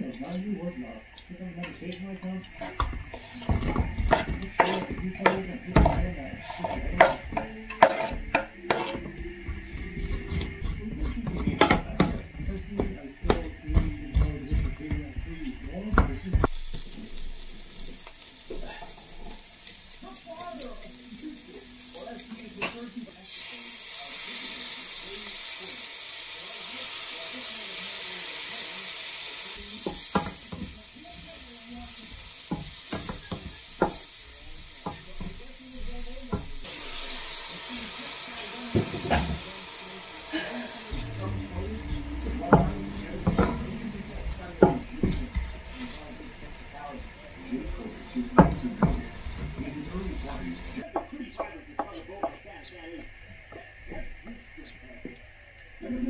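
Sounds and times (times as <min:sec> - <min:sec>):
vegetables sizzling in a pan: 0:02.3 - 0:56.0
wooden spatula scraping frying pan: 0:02.5 - 0:16.9.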